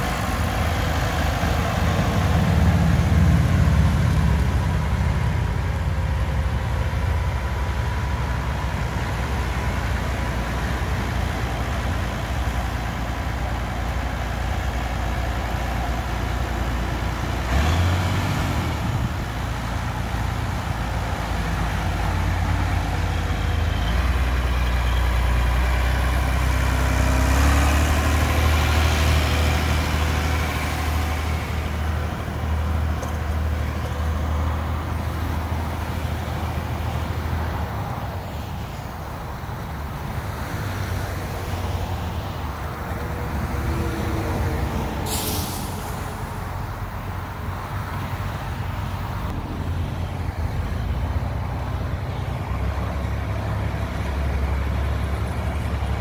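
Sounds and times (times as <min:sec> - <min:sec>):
tractor diesel engine running: 0:00.0 - 0:56.0
sharp hiss: 0:45.0 - 0:46.4.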